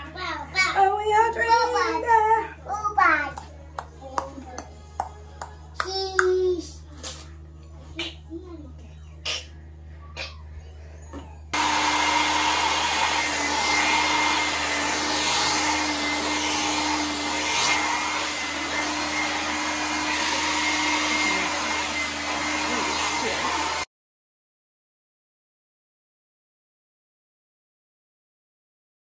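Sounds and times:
hair dryer running: 11.5s - 23.9s.

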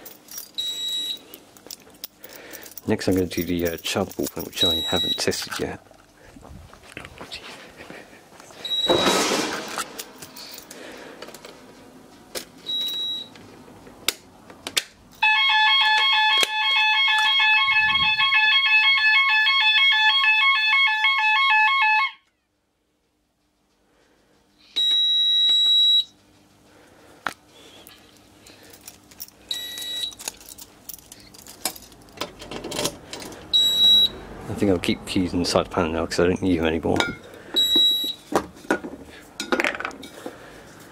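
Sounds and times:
fire alarm two-tone warble: 0.6s - 1.2s, 4.6s - 5.3s, 8.6s - 9.2s, 15.2s - 22.3s, 24.8s - 26.2s, 29.5s - 30.2s, 33.5s - 34.2s, 37.6s - 38.2s
fire panel buzzer beeping: 0.6s - 1.2s, 4.6s - 5.4s, 8.6s - 9.3s, 15.2s - 22.3s, 24.8s - 26.2s, 29.5s - 30.2s, 33.5s - 34.2s, 37.6s - 38.3s.

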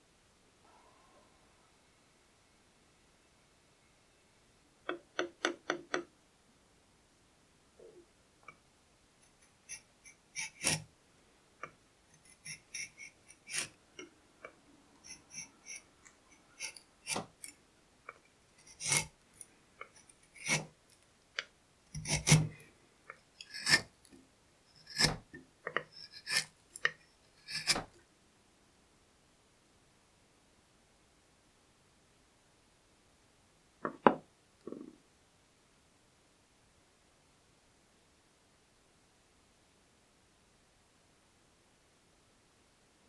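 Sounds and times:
chisel paring wood: 4.9s - 6.1s, 10.4s - 10.9s, 16.6s - 17.5s, 18.6s - 19.1s, 19.9s - 20.7s, 21.9s - 22.6s, 23.4s - 23.9s, 24.8s - 28.0s.

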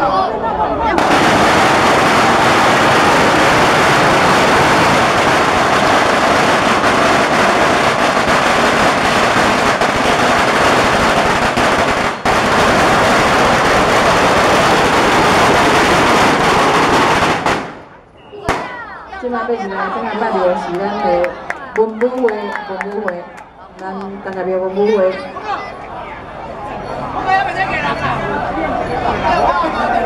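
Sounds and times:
firecrackers crackling: 0.9s - 19.6s.

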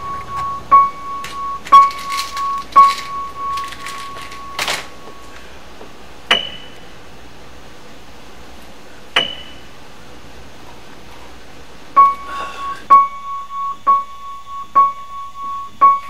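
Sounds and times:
sparse keyboard notes: 0.0s - 5.4s.

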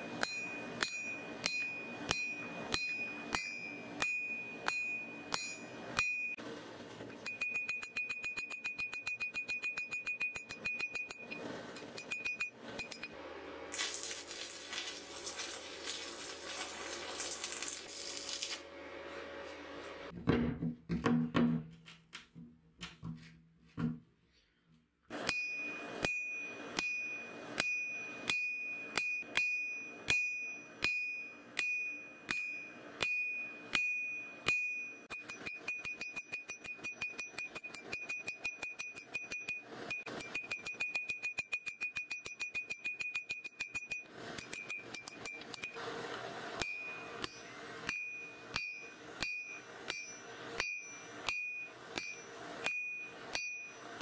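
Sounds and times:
hammer striking steel on anvil: 0.0s - 6.4s, 7.2s - 13.2s, 25.1s - 45.8s, 46.6s - 54.0s.

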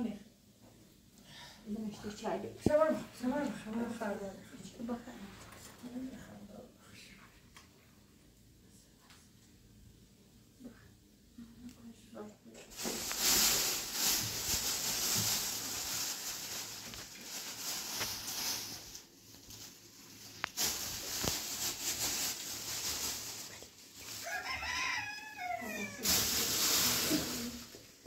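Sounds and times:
background hiss: 4.7s - 28.0s
rooster crowing: 24.2s - 26.1s.

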